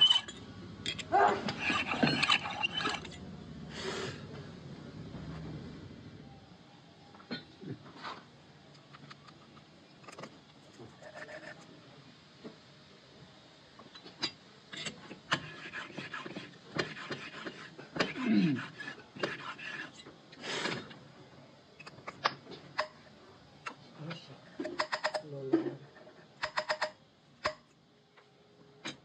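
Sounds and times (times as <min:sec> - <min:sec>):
metal cutters clinking and scraping: 0:00.0 - 0:03.2.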